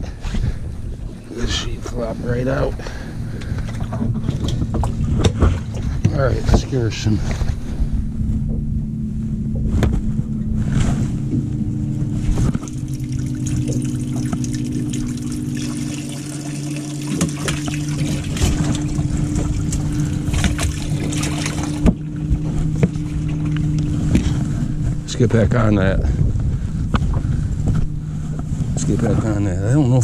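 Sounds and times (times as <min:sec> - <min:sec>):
boat motor hum: 0:00.0 - 0:30.0
water trickling and splashing: 0:12.2 - 0:25.0.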